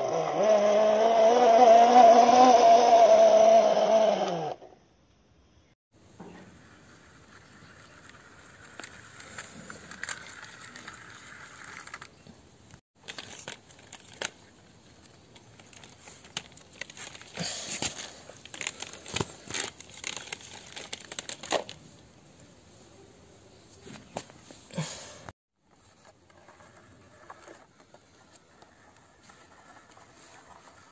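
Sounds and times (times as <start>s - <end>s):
plastic wheels scraping concrete: 6.9s - 12.3s, 25.8s - 30.9s
plastic toy clicks and rattles: 8.0s - 12.2s.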